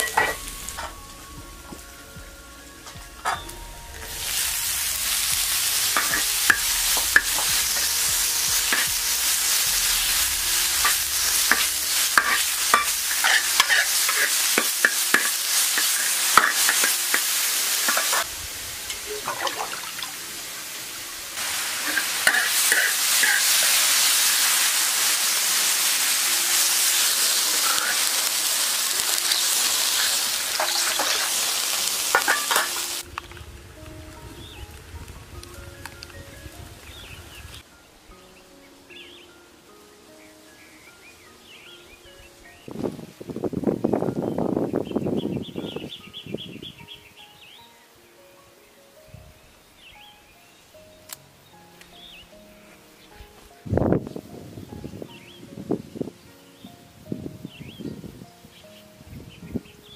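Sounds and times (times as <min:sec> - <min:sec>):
mushrooms sizzling in hot oil: 0:00.0 - 0:02.3, 0:03.3 - 0:37.6
spatula scraping a wok: 0:03.3 - 0:18.3, 0:21.4 - 0:33.0.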